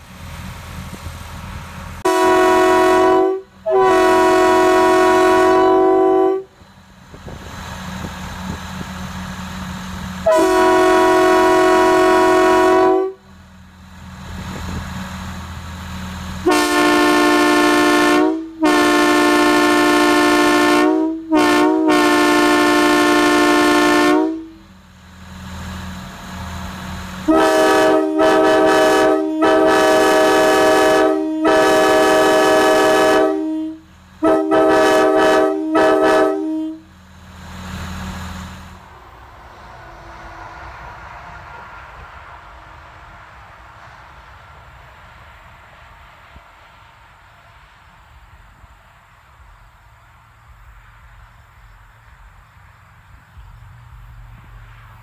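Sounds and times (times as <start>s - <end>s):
locomotive air horn chords: 2.0s - 6.6s, 10.2s - 13.3s, 16.4s - 24.7s, 27.2s - 37.0s.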